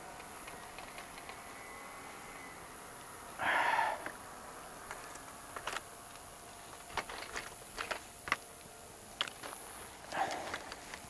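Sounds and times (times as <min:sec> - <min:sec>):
bicycle clicks and rattles: 0:00.0 - 0:01.6, 0:04.8 - 0:11.0
person breathing close to microphone: 0:03.4 - 0:04.1.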